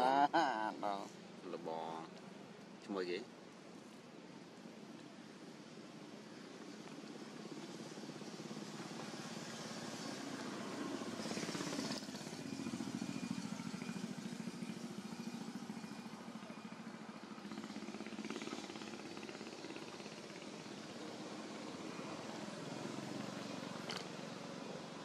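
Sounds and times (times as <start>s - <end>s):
motor vehicle engine drone: 6.8s - 25.0s.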